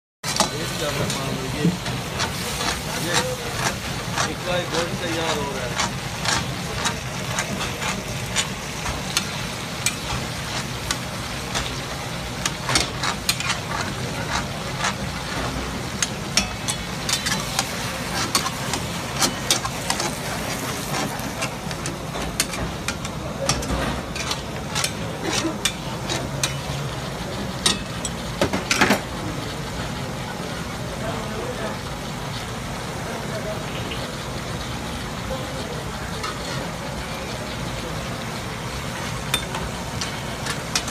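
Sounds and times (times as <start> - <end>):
meat sizzling: 0.2 - 28.4, 36.2 - 40.9
metal utensils clinking on a wok: 0.3 - 29.2, 36.2 - 36.7, 38.9 - 40.9.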